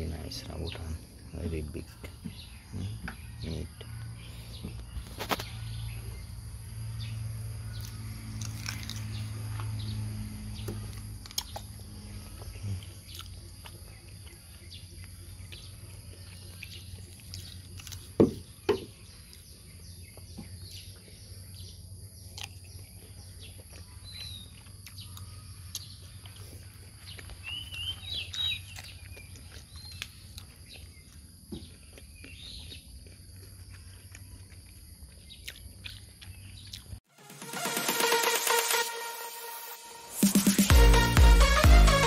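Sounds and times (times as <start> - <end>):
bird chirps: 0.0 - 37.0
insect drone: 2.6 - 20.0
low hum: 3.7 - 17.4
sharp knocks: 18.2 - 18.9.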